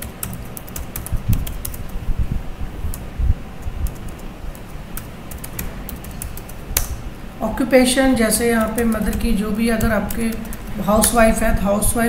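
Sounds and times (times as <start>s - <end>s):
keyboard keys tapping: 0.0s - 7.0s, 8.5s - 11.3s
background hum: 0.0s - 12.0s
soft low thumps: 1.1s - 4.0s.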